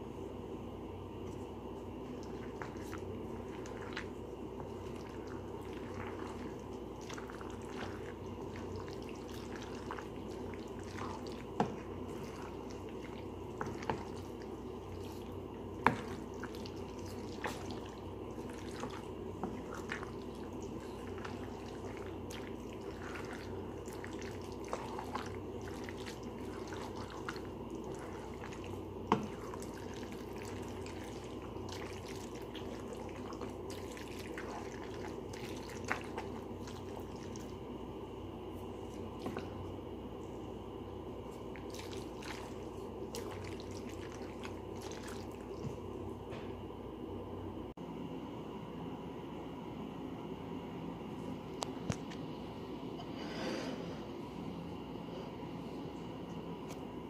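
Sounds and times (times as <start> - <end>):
steady low hum: 0.0 - 57.0
pasta squelching in sauce: 1.8 - 37.7, 41.2 - 45.8.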